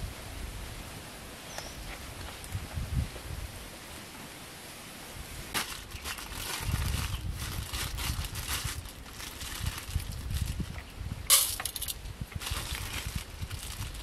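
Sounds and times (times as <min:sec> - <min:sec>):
plastic bag crinkling: 0:05.6 - 0:10.7, 0:11.4 - 0:14.0.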